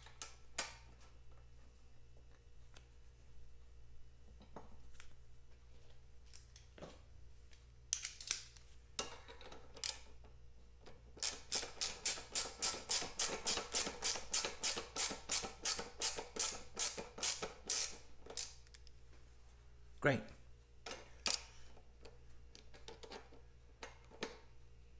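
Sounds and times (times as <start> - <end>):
ratchet wrench clicking: 11.2 - 18.7.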